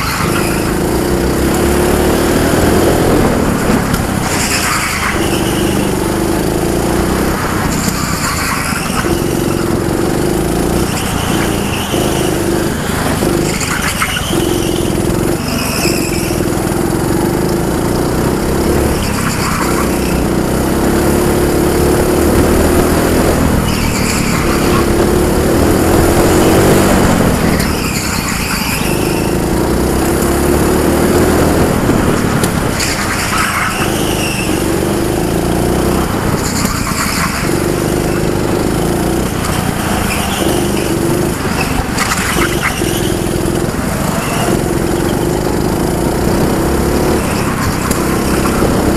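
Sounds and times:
go-kart engine revving: 0:00.0 - 0:48.9
tyre squeals: 0:00.0 - 0:48.9.

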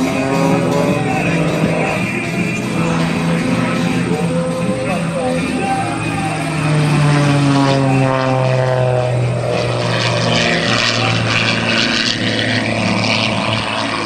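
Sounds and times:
propeller plane engine passing: 0:00.0 - 0:14.0.

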